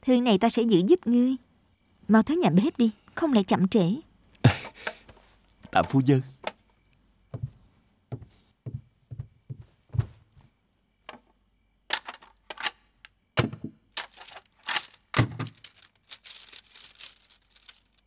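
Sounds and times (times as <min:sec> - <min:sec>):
soft footsteps: 0:07.3 - 0:11.3
bamboo scroll clacking and rattling: 0:11.9 - 0:12.8, 0:13.4 - 0:18.0.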